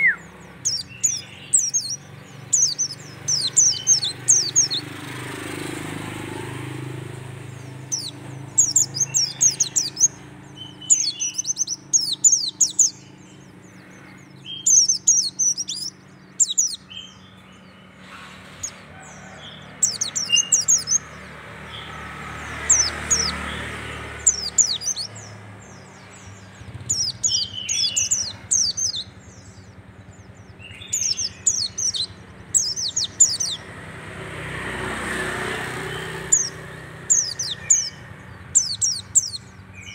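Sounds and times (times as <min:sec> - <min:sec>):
bird singing high thin notes: 0:00.0 - 0:04.8.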